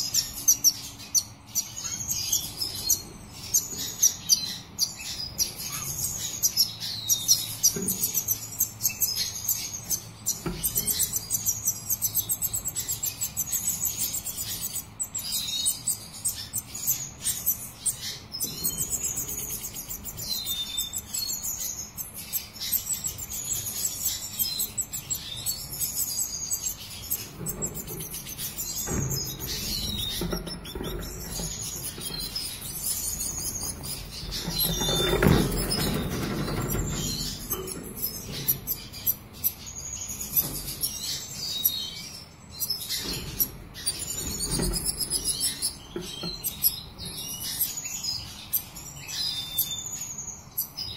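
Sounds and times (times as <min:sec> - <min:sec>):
bird twittering and trilling: 0:00.0 - 0:50.9
wings fluttering: 0:26.9 - 0:39.4.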